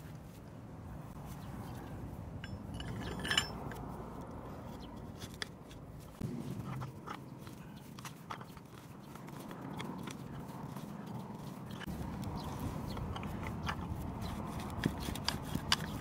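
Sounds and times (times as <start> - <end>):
metal clinking: 2.3 - 4.0
hand auger turning in wood: 6.8 - 16.0.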